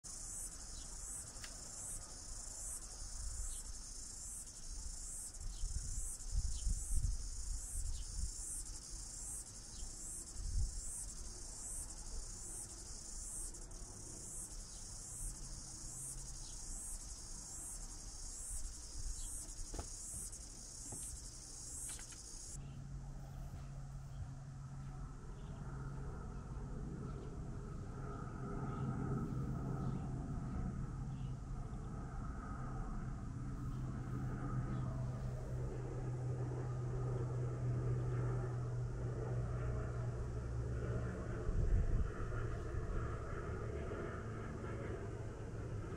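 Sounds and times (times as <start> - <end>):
insects chirping: 0.0 - 22.6.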